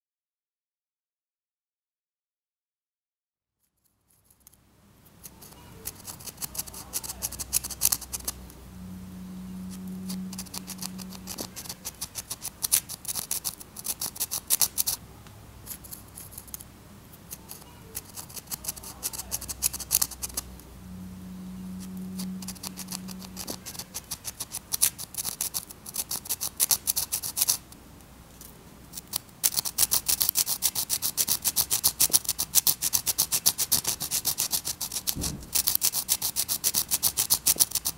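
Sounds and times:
pencil scratching on asphalt: 5.2 - 8.4, 9.6 - 15.0, 15.6 - 16.6, 17.2 - 20.6, 21.7 - 27.6, 28.9 - 37.9
short low hum: 6.4 - 12.3, 18.6 - 24.4.

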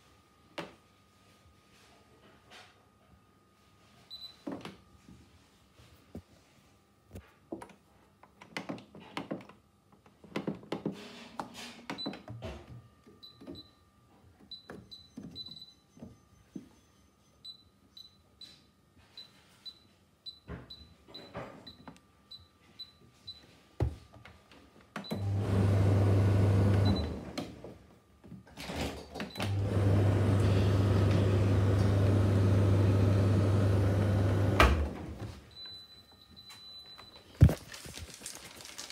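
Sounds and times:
tumble dryer humming: 29.5 - 35.1.

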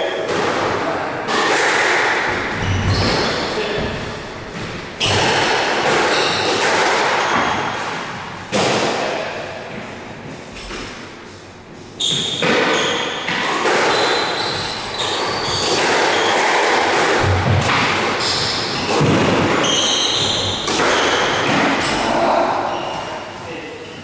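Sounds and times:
squash ball hits: 0.2 - 9.2, 12.1 - 22.1
sneakers squeaking on wooden floor: 2.4 - 7.8, 12.0 - 16.4, 18.1 - 22.0, 22.6 - 23.3.

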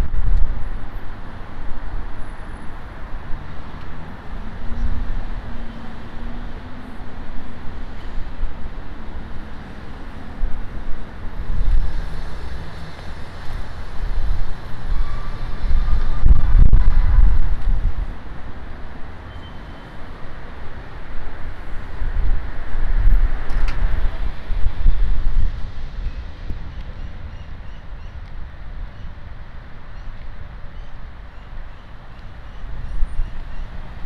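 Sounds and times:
street traffic rumble: 0.0 - 34.0
wind buffeting microphone: 7.3 - 18.6, 20.6 - 34.0.

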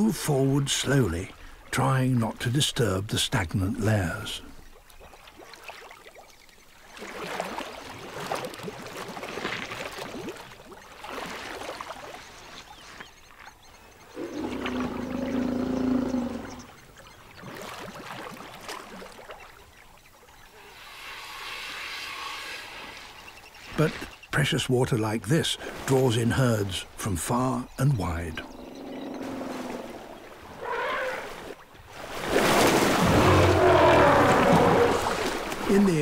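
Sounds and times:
water splashing and sloshing: 0.0 - 36.0
deep elephant call: 14.2 - 16.8, 28.4 - 31.4, 33.0 - 35.3.

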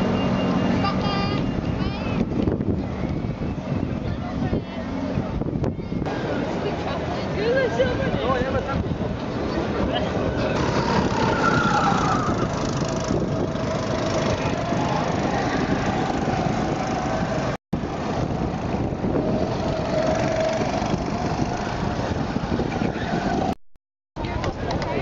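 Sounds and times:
go-kart engines passing: 6.0 - 23.6.

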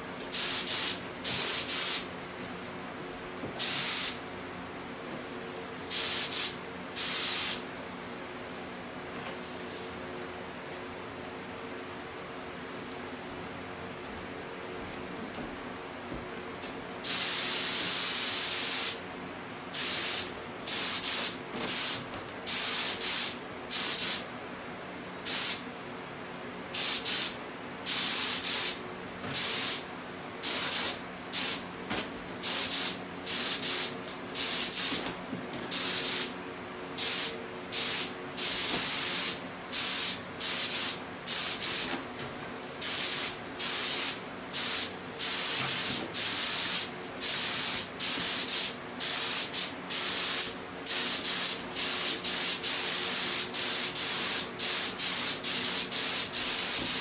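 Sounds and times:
spray gun hissing in bursts: 0.3 - 4.2, 5.9 - 7.6, 17.0 - 19.0, 19.7 - 24.3, 25.0 - 25.6, 26.7 - 31.7, 32.4 - 42.0, 42.6 - 57.0.

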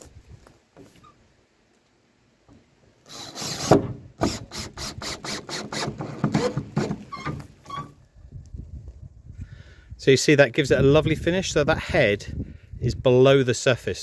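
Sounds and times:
cordless drill boring into wood: 3.1 - 7.9.

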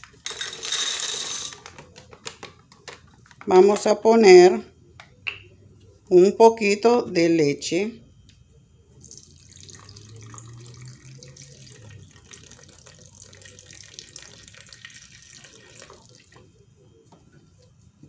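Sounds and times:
milk pouring into a glass jar: 9.0 - 16.6.

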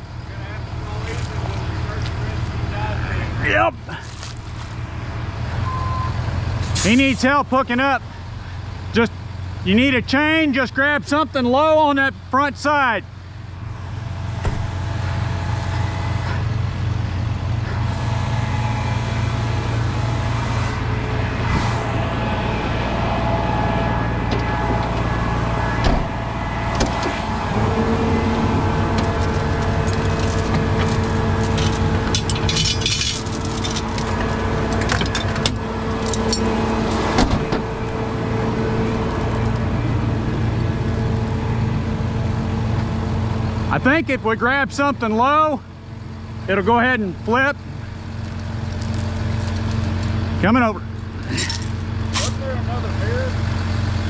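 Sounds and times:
diesel engine idling: 0.0 - 54.0
higher steady hum: 11.4 - 54.0
heavy chains clinking and rattling: 27.7 - 37.2, 48.2 - 50.1, 51.2 - 52.6.

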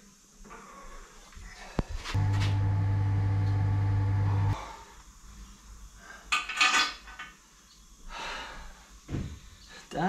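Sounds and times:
metal tools clinking and clattering: 6.3 - 7.3.

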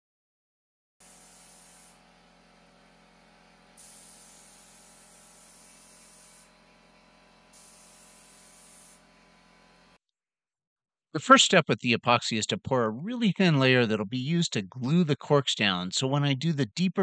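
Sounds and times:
spray gun hissing: 1.0 - 2.0, 3.8 - 6.5, 7.5 - 9.0.

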